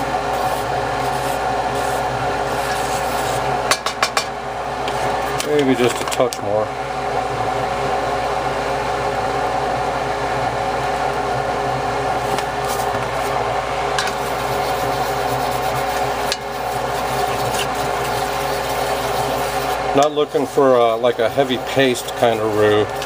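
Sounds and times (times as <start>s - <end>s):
mechanical hum with hiss: 0.0s - 23.0s
roux bubbling in a pot: 14.1s - 23.0s.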